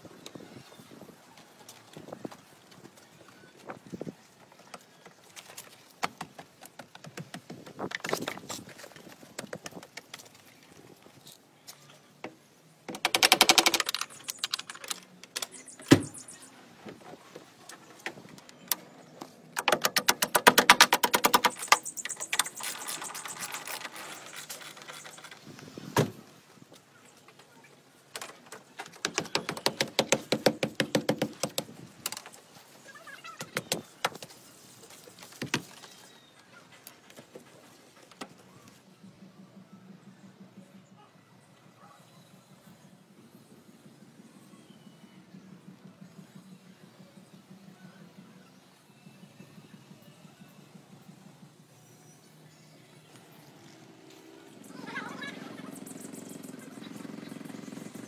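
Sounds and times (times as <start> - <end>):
rapid mechanical clicking: 12.9 - 15.7, 19.6 - 25.3.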